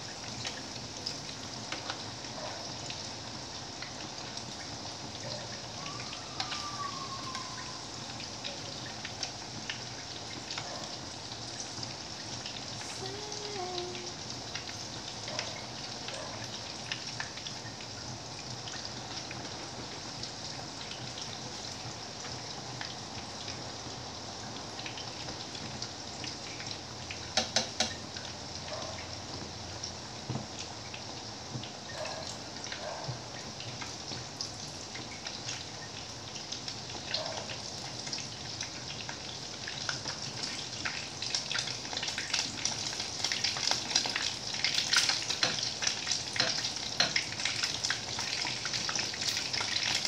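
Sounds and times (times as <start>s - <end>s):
meat sizzling in a pan: 0.0s - 50.0s
metal tongs clicking on pan: 46.4s - 47.3s.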